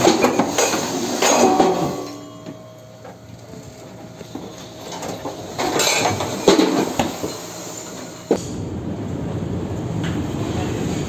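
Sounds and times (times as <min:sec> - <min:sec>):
loose objects rattling and clattering: 0:04.9 - 0:07.4.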